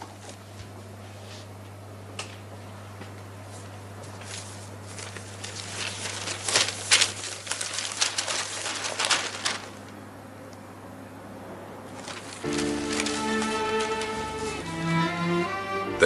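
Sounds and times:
newspaper pages rustling: 3.6s - 10.0s, 11.9s - 15.1s.

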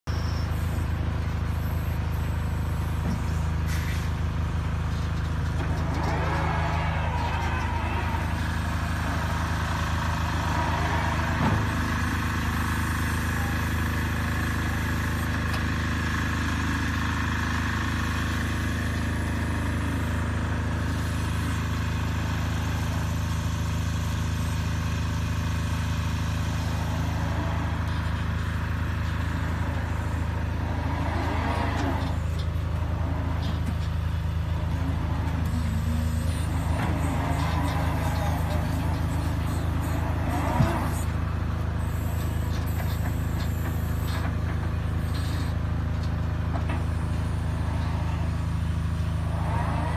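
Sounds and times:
wheel loader electric hum: 0.0s - 49.9s.

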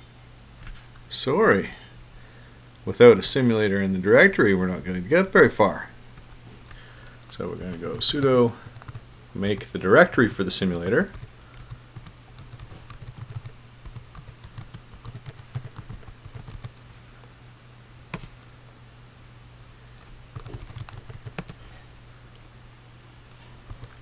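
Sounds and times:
low steady hum: 0.0s - 24.0s
keyboard typing: 7.2s - 16.8s, 20.3s - 21.6s, 23.7s - 24.0s.

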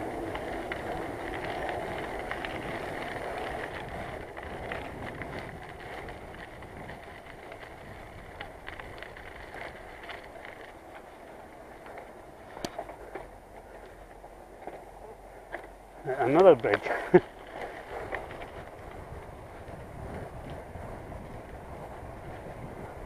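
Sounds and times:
wind on microphone: 0.0s - 10.1s, 17.7s - 23.0s
bicycle tyre noise: 0.0s - 23.0s
bike rattles and clicks: 0.0s - 23.0s.

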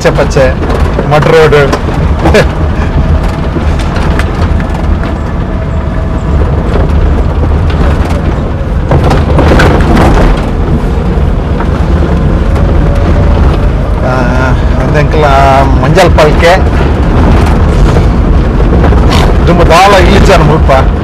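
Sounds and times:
vehicle rumble on dirt road: 0.0s - 21.0s
wind buffeting microphone: 0.0s - 21.0s.

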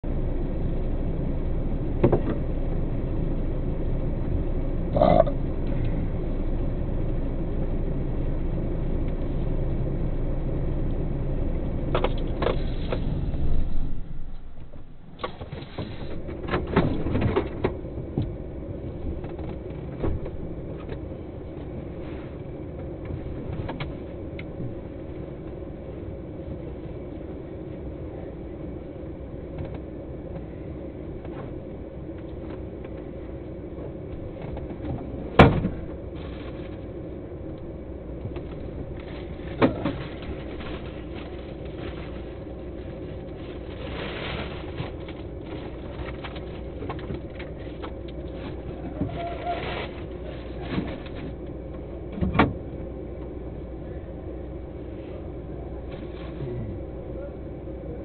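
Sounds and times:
truck engine idling: 0.0s - 16.7s
steady hum: 0.0s - 58.0s.

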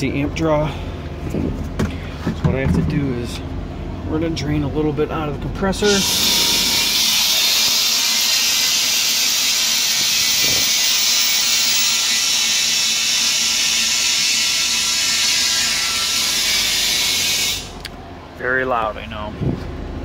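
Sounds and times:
compressed air hissing: 5.9s - 17.9s.

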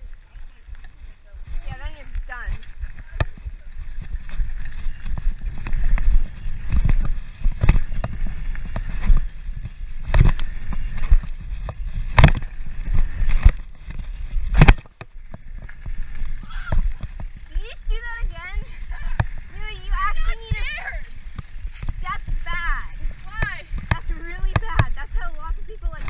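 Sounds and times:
tyres rumbling on dirt: 1.6s - 26.0s
bike landing knocks: 23.3s - 25.1s.

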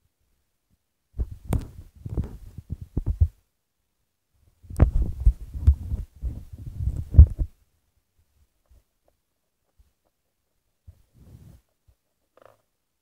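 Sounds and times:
low thumping and rubbing: 4.8s - 7.5s.

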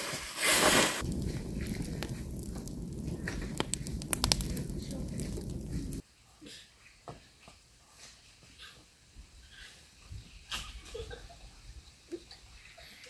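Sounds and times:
fire crackling and popping: 0.0s - 6.0s
fire flames rumbling: 0.3s - 6.0s.

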